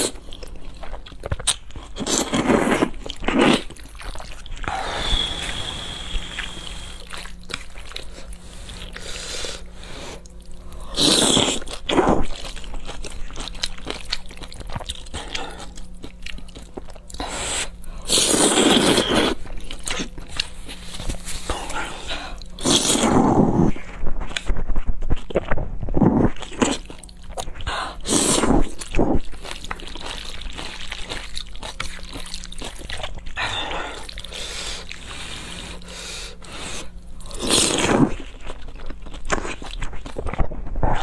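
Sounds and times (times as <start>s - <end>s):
wet chewing and lip smacking: 0.0s - 2.1s, 3.0s - 4.7s, 11.4s - 23.0s, 24.2s - 33.4s
noodle slurping: 17.2s - 19.5s.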